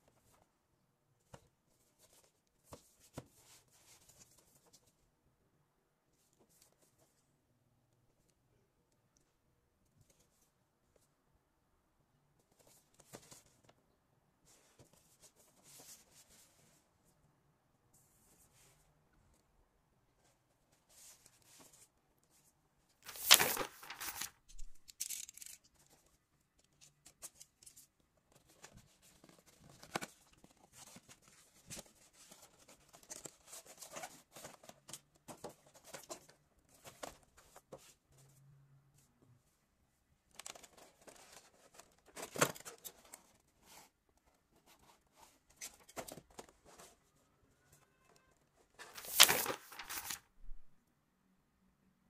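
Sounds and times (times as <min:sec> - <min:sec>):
plastic and cardboard packaging crinkling: 0:23.1 - 0:25.6, 0:48.9 - 0:50.7.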